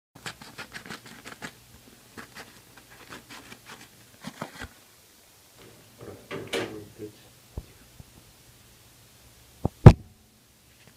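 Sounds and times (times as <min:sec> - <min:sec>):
paper crinkling: 0:00.2 - 0:04.8.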